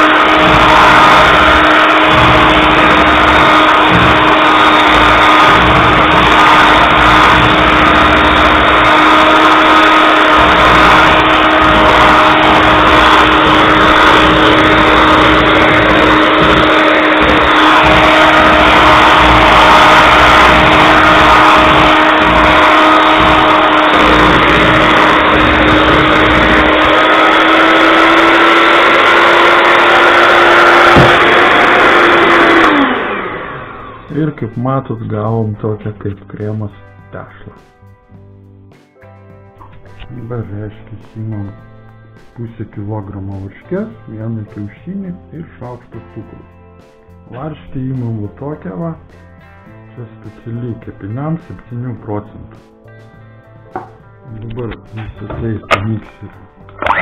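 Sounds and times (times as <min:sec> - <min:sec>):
electric hand mixer humming: 0:00.0 - 0:34.4, 0:39.6 - 0:44.0, 0:56.6 - 0:57.0.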